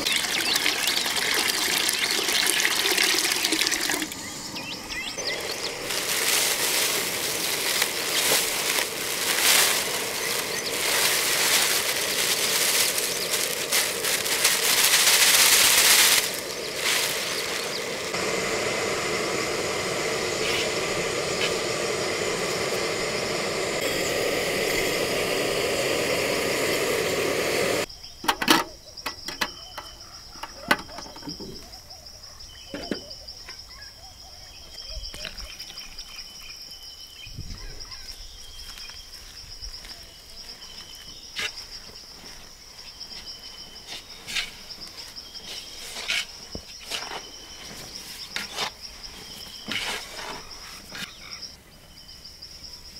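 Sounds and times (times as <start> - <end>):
insect trilling: 0.0 - 52.5
loud steady noise: 4.1 - 27.9.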